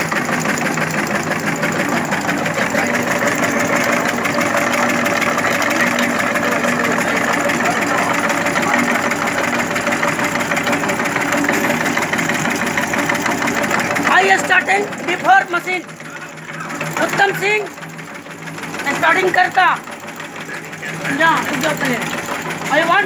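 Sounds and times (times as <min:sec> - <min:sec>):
cutting machine clatter: 0:00.0 - 0:23.0
electric motor humming: 0:00.0 - 0:23.0.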